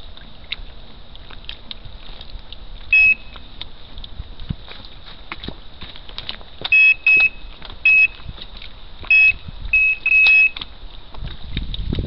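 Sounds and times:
electronic bite alarm beeps: 2.9s - 3.4s, 6.7s - 8.2s, 9.1s - 10.6s.

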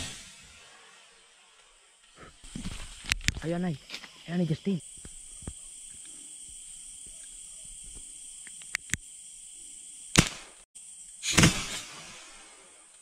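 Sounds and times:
loud burst of noise: 0.0s - 1.2s
insects chirring: 0.0s - 13.0s
gunshot: 10.1s - 10.6s, 11.2s - 12.4s.

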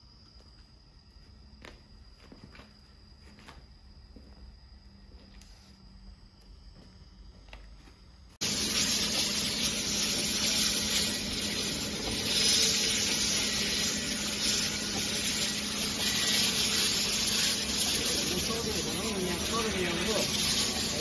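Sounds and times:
machine hissing with low hum: 8.4s - 21.0s.

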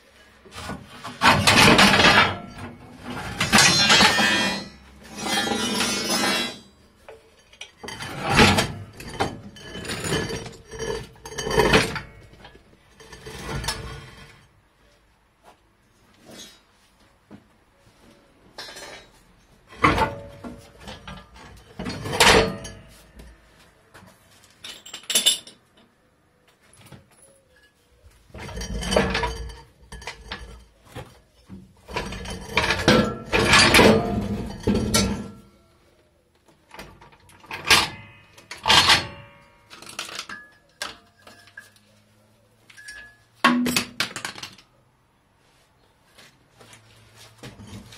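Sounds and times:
metal clanks and rattles: 0.5s - 14.4s, 18.5s - 23.4s, 27.6s - 35.6s, 36.7s - 41.9s.

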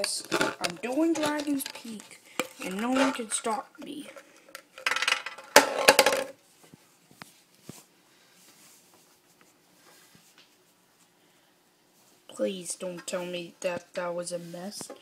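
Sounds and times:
small hard objects clattering on tabletop: 0.0s - 6.4s.

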